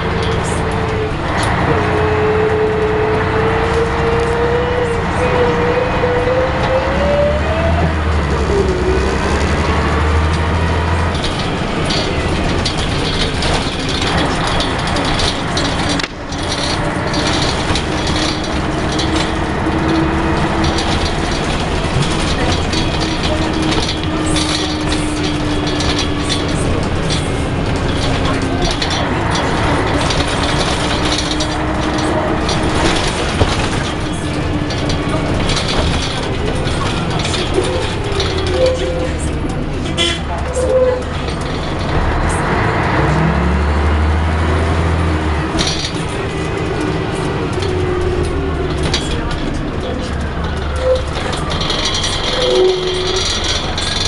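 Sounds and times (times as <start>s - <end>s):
bus engine whine: 0.0s - 54.0s
deep engine drone: 0.0s - 54.0s
road rumble: 0.0s - 54.0s
panels rattling: 7.6s - 54.0s.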